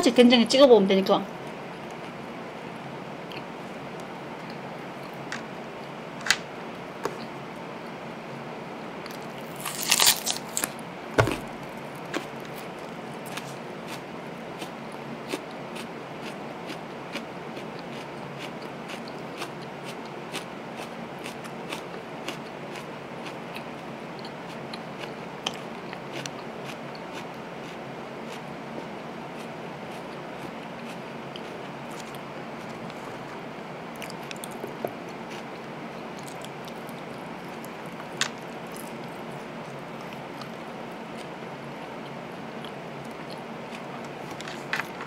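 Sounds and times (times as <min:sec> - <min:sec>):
wet chewing: 0:09.1 - 0:14.0, 0:33.9 - 0:41.3
crunchy bite of burger: 0:09.1 - 0:28.5.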